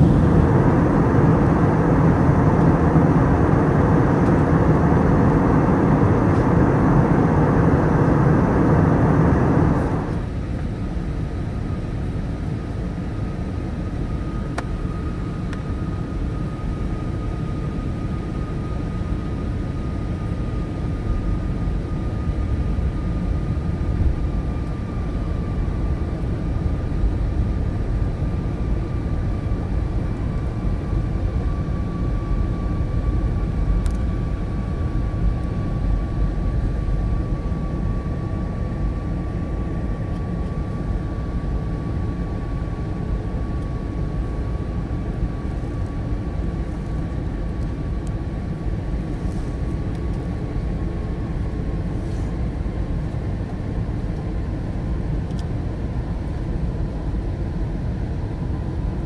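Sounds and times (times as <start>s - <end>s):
thin whine: 0.0s - 10.4s
aircraft engine and airflow roar: 0.0s - 59.0s.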